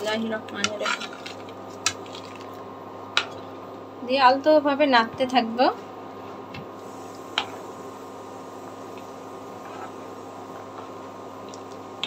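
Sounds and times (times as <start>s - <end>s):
steady low hiss and hum: 0.0s - 12.0s
spoon scraping a pan: 9.6s - 10.1s.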